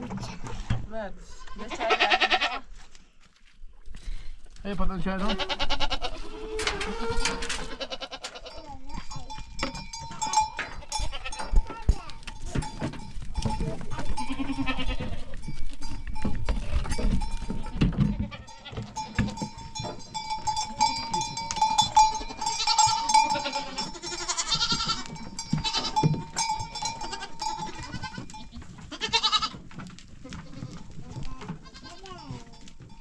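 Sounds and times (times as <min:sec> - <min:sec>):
goats bleating: 0:01.2 - 0:02.7, 0:05.2 - 0:08.7, 0:10.0 - 0:12.8, 0:13.4 - 0:15.5, 0:16.8 - 0:32.7
knocks and scuffling: 0:06.6 - 0:33.0.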